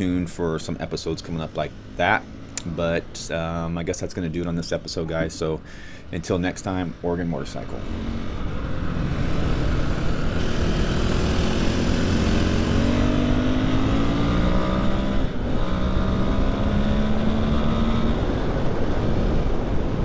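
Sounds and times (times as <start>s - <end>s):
motorcycle engine accelerating: 7.6s - 20.0s.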